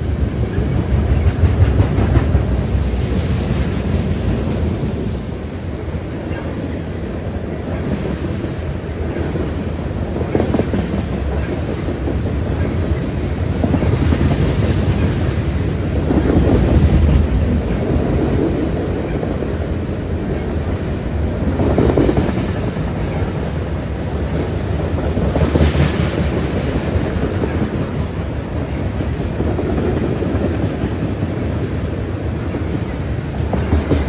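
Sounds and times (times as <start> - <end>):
freight train cars rumbling: 0.0 - 34.0.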